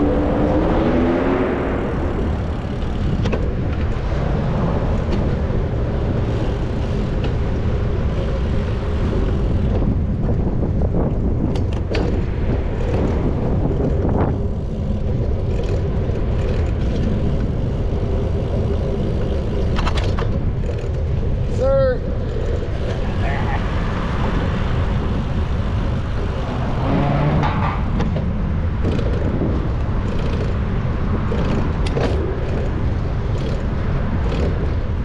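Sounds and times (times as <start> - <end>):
road traffic noise: 0.0 - 35.0.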